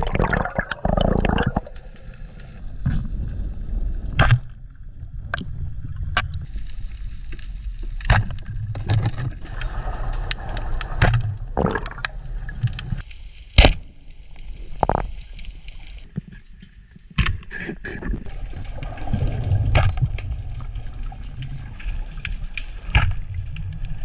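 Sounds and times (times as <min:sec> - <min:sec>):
underwater rushing and bubbles: 0:00.0 - 0:16.1, 0:18.2 - 0:24.0
low underwater rumble: 0:17.9 - 0:24.0.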